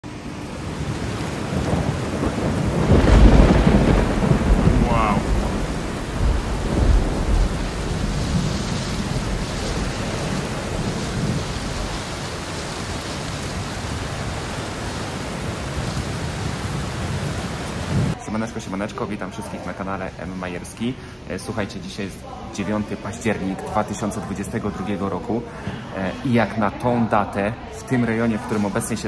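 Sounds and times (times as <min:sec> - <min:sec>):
thunder rumbling: 0:00.0 - 0:18.2
steady rain: 0:00.0 - 0:29.0.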